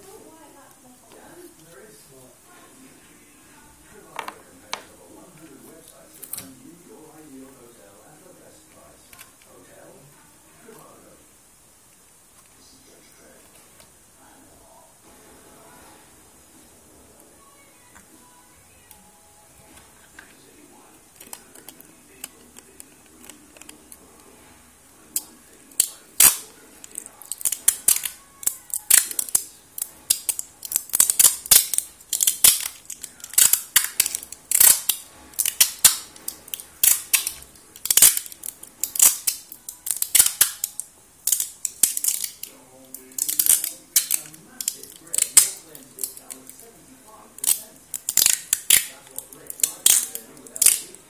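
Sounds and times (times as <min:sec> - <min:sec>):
sharp cracks and pops: 0:25.1 - 0:46.7, 0:47.4 - 0:51.0.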